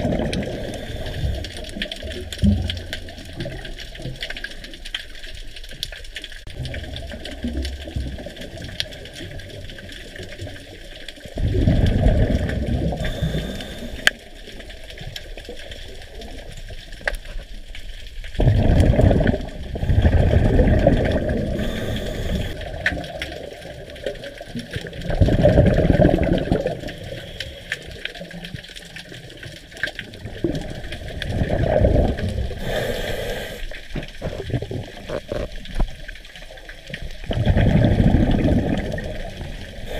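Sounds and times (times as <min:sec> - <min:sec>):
underwater breath bubbles rushing: 0:00.0 - 0:02.9, 0:11.4 - 0:14.2, 0:18.4 - 0:23.2, 0:24.9 - 0:28.1, 0:30.4 - 0:35.8, 0:37.2 - 0:39.9.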